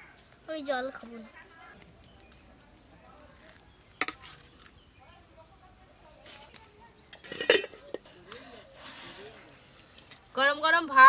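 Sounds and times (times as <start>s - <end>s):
spoon clinking against steel bowl: 7.1s - 7.8s.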